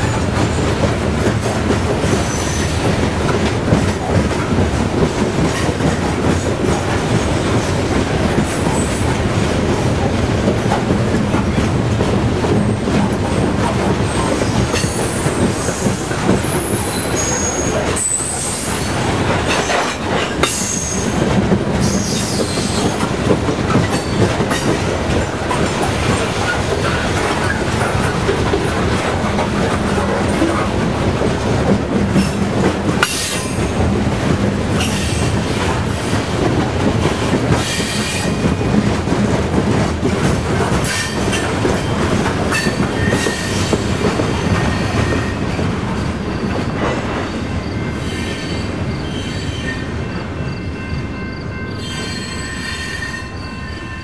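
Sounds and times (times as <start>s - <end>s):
train wheels rumbling on rail: 0.0s - 54.0s
high-pitched wheel squeals: 51.7s - 54.0s.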